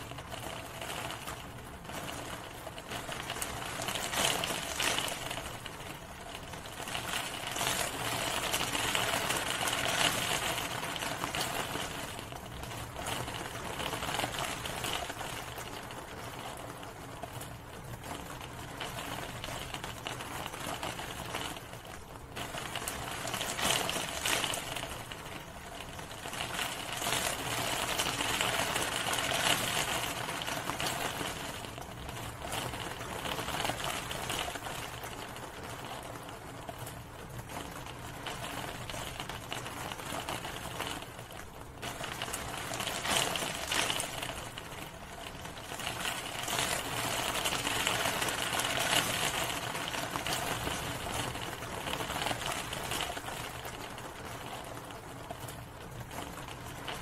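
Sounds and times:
steady rain patter: 0:00.0 - 0:57.0.

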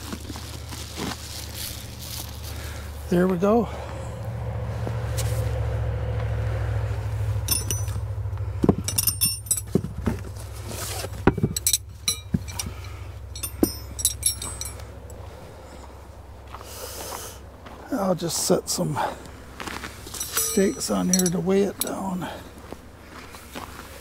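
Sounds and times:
metal tent stakes clinking: 0:07.3 - 0:15.9, 0:19.6 - 0:22.5.

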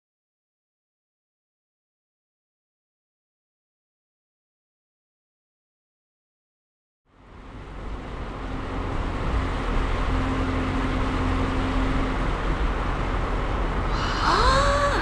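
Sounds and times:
car road and engine noise: 0:07.1 - 0:15.0.

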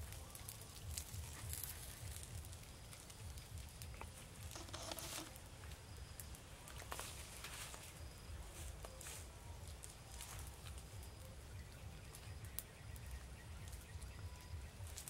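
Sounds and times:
light footsteps through undergrowth: 0:00.0 - 0:11.3
rustling of grass and leaves: 0:00.0 - 0:15.0.

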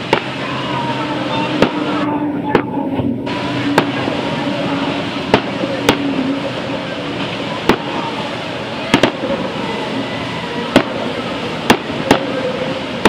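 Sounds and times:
motorboat engines over rough water: 0:00.0 - 0:13.0
sharp bangs: 0:08.9 - 0:09.5, 0:10.7 - 0:12.4.

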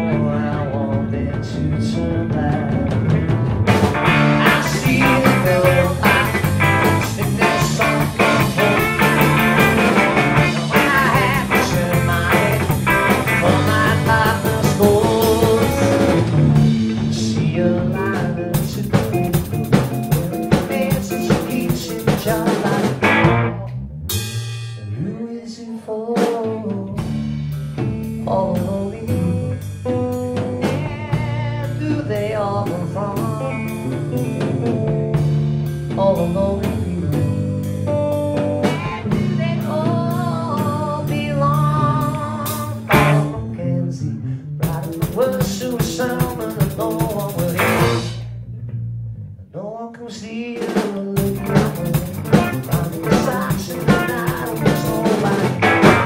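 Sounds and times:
blues-rock band playing: 0:00.0 - 0:24.8, 0:26.3 - 0:43.8, 0:44.6 - 0:48.4, 0:50.7 - 0:56.0
drum kit: 0:00.0 - 0:25.5, 0:26.1 - 0:43.5, 0:44.6 - 0:48.9, 0:50.4 - 0:56.0.

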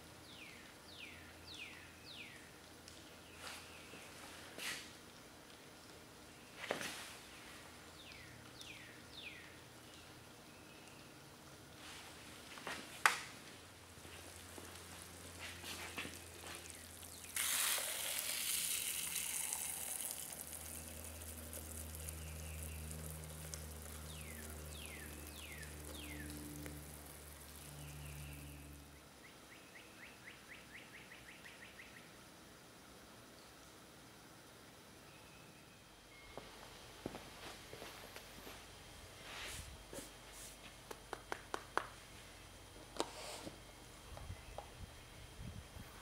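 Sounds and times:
molten pitch sizzling and hissing: 0:13.6 - 0:29.0.

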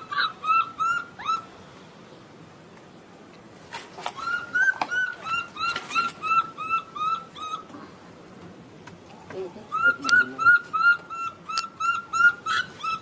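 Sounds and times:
baby monkey distress cries: 0:00.0 - 0:01.5, 0:04.2 - 0:07.7, 0:09.7 - 0:13.0.

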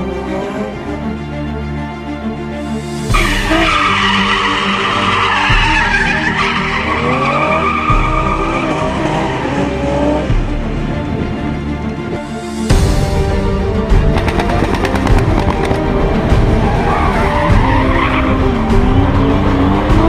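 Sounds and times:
car engine revving: 0:03.0 - 0:11.6, 0:13.1 - 0:20.0
car tyres squealing: 0:03.1 - 0:10.3, 0:16.4 - 0:18.6
music with steady beat: 0:12.3 - 0:20.0.

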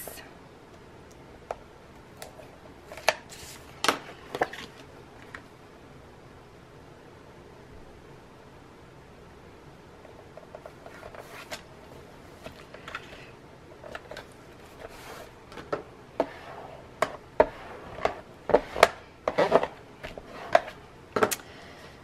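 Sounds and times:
paper rustling: 0:10.8 - 0:11.7.

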